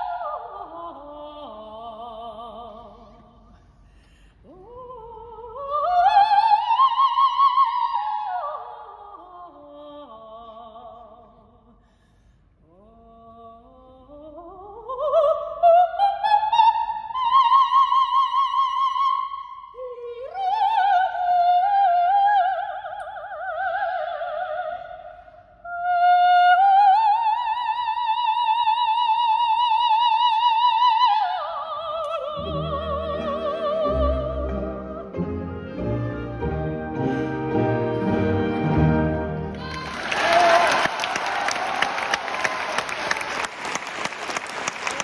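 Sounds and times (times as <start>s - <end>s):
operatic soprano singing: 0.0s - 3.6s, 4.4s - 11.8s, 12.7s - 41.6s
orchestra playing: 32.4s - 39.8s.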